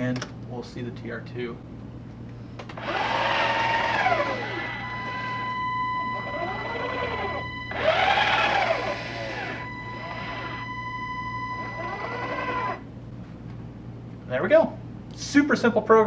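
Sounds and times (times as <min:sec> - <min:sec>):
high-pitched actuator buzz: 0:02.8 - 0:12.9
robot arm motors whining: 0:02.8 - 0:12.9.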